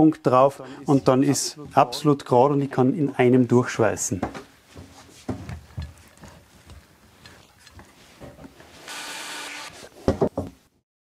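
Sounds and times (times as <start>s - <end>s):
hot-air welding gun hiss: 8.8s - 9.9s.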